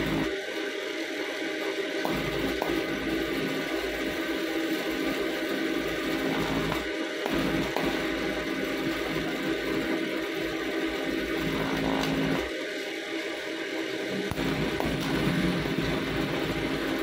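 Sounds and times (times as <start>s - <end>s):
welding arc buzz and hiss: 0.0s - 17.0s
low hum: 14.1s - 17.0s.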